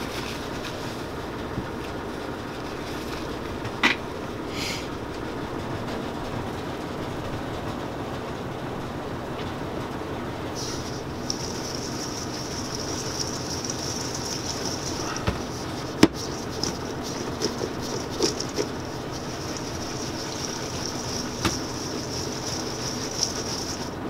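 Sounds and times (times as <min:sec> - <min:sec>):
cherries rattling in a bowl: 0:10.6 - 0:24.0.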